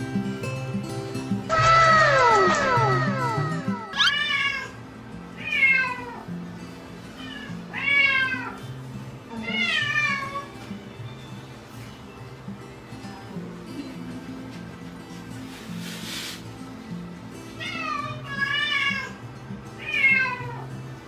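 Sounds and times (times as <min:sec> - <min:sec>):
background music: 0:00.0 - 0:21.0
cat meowing: 0:01.5 - 0:04.8, 0:05.4 - 0:06.3, 0:07.2 - 0:08.6, 0:09.3 - 0:10.5, 0:19.8 - 0:20.7.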